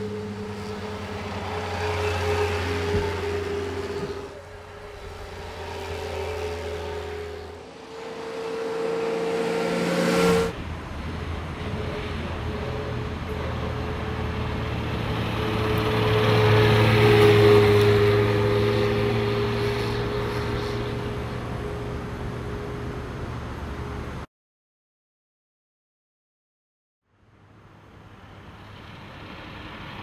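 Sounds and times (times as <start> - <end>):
car engine driving past: 0.0 - 10.6
loud engine sound: 0.0 - 24.2.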